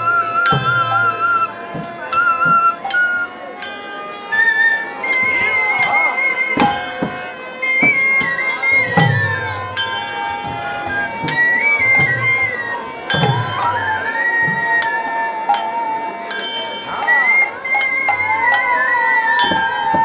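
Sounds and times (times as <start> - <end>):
harmonium chords: 0.0 - 20.0
high wavering melody: 0.0 - 20.0
cymbal strikes: 0.4 - 1.1, 7.8 - 12.2, 13.1 - 13.6.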